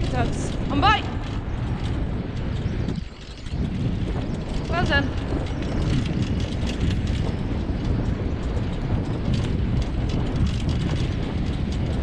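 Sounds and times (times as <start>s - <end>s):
rattling clicks from rig: 0.0s - 12.0s
wheeled rig rolling on dirt: 0.0s - 12.0s.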